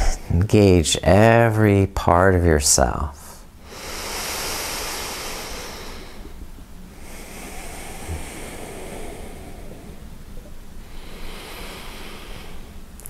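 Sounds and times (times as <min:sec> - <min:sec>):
person breathing slowly: 0:03.6 - 0:13.0.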